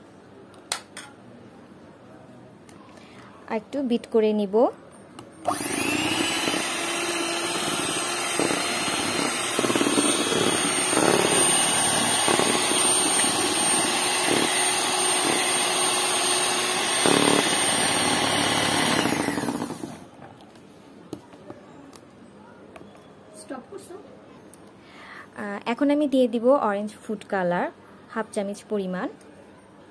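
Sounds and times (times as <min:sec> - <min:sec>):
mixer whirring down: 0:05.4 - 0:20.1
electric hand mixer running: 0:05.5 - 0:20.1.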